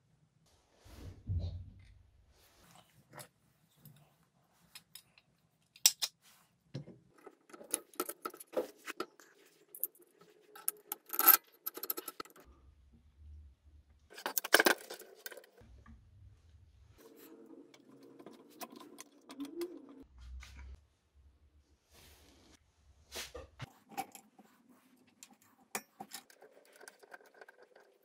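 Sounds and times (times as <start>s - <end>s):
metal parts clinking and knocking: 7.2s - 12.5s, 14.1s - 15.6s, 25.8s - 28.0s.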